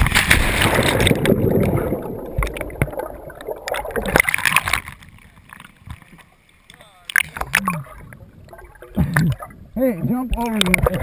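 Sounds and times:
knocks underwater: 0.0s - 5.0s, 7.1s - 9.6s
splashing at the surface: 0.0s - 5.1s
underwater churning and bubbling: 0.0s - 11.0s.

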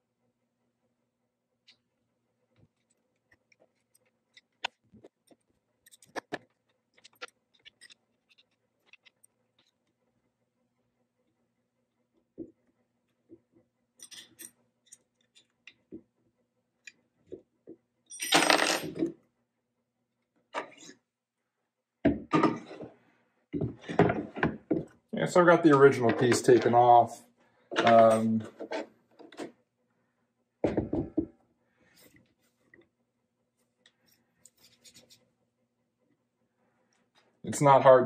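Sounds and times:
metal tools tapping metal: 27.8s - 28.4s.

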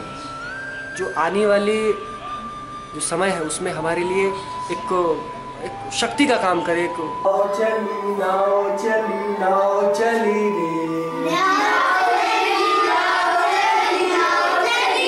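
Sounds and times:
children singing: 7.4s - 15.0s.

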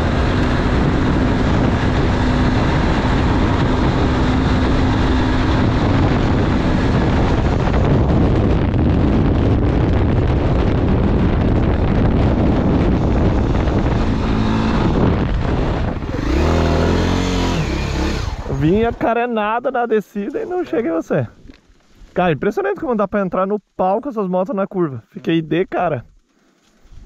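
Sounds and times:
motorcycle engine: 0.0s - 19.1s
wind rush on microphone: 0.0s - 23.2s, 26.8s - 27.0s.

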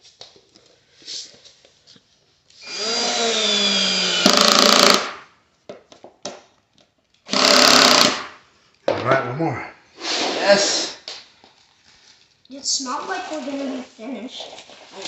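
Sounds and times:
cordless drill driving screw: 2.6s - 5.2s, 7.3s - 8.3s.

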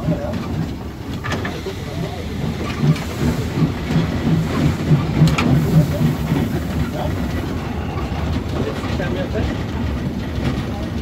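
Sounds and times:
steam locomotive rhythmic beat: 0.0s - 11.0s.

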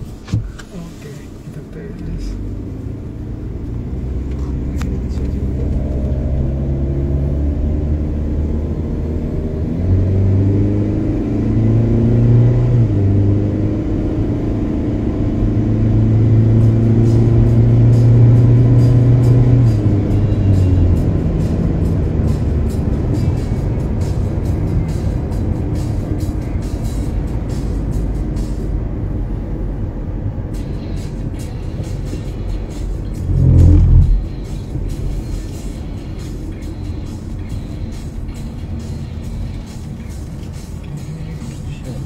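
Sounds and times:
car engine accelerating hard: 0.0s - 42.0s
background music: 16.3s - 42.0s.

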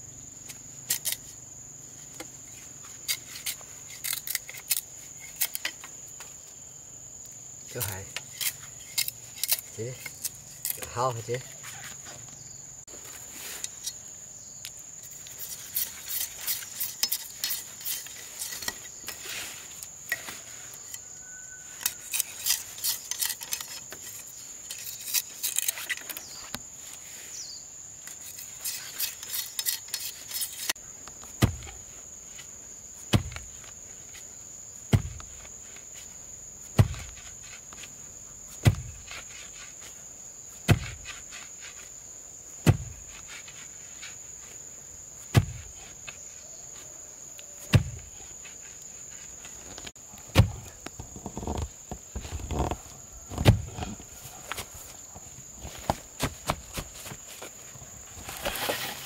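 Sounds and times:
high insect drone: 0.0s - 59.0s
wood being rasped: 15.3s - 20.9s, 21.8s - 26.1s, 28.1s - 30.8s.

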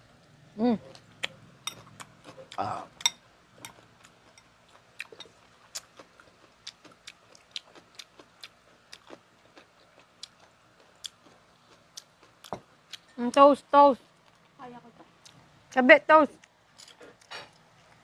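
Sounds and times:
wet chewing mouth sounds: 3.7s - 13.1s.

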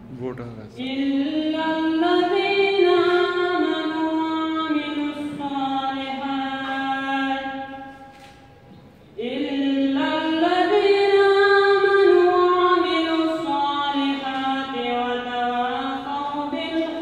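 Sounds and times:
boy chanting melodically: 9.2s - 17.0s.

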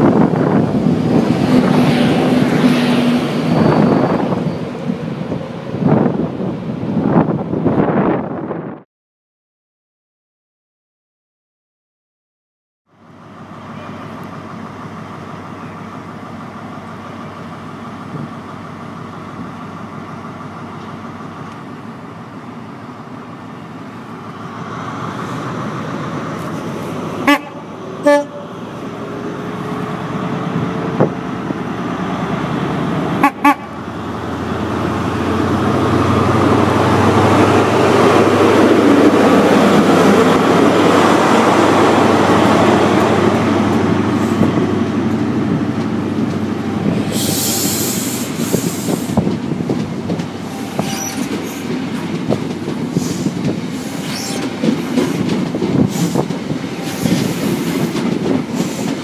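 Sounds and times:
train wheel noise: 0.0s - 8.2s, 13.3s - 59.0s
diesel train engine: 0.0s - 8.8s, 12.9s - 59.0s
train horn toots: 27.2s - 28.5s, 33.2s - 33.8s, 50.5s - 51.3s.

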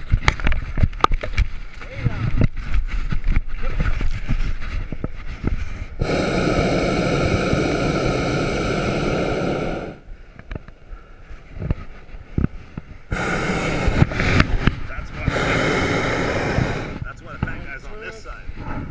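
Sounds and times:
propane burner firing: 6.0s - 10.1s, 13.1s - 17.1s.

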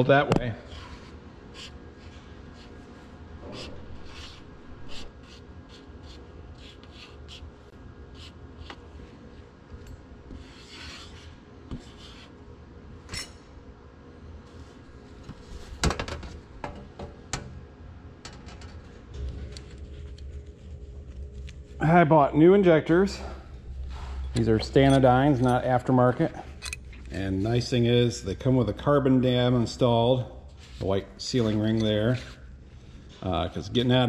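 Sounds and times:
metal parts clicking and tapping: 26.6s - 27.1s.

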